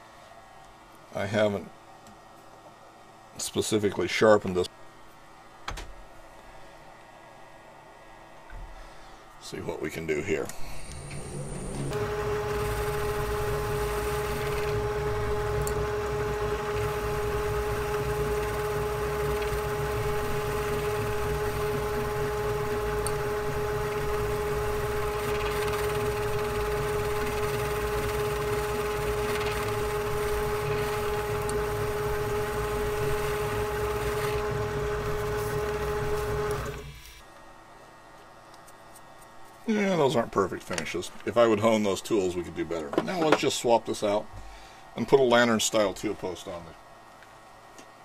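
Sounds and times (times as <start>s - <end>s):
metal lathe motor whine: 10.6s - 37.1s.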